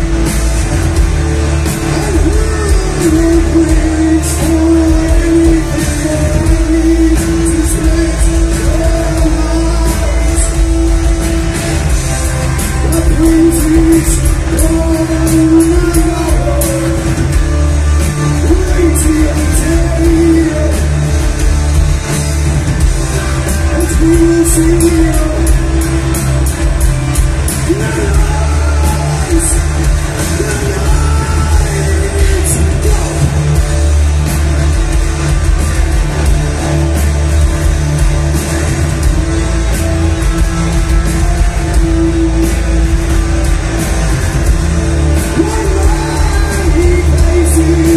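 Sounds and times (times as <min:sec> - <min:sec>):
bass guitar: 0:00.0 - 0:47.9
distorted electric guitars: 0:00.0 - 0:47.9
drums with cymbal hits: 0:00.0 - 0:47.9
man singing: 0:01.8 - 0:11.5, 0:12.7 - 0:21.4, 0:23.6 - 0:33.6, 0:45.2 - 0:47.9.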